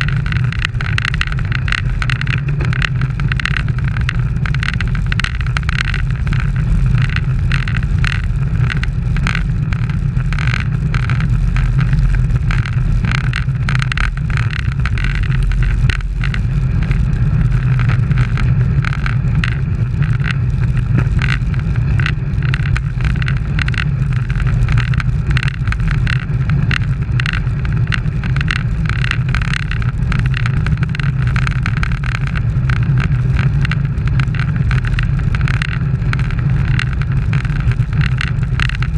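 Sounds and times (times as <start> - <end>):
road rumble: 0.0 - 38.9
small rattles and clicks: 0.0 - 38.9.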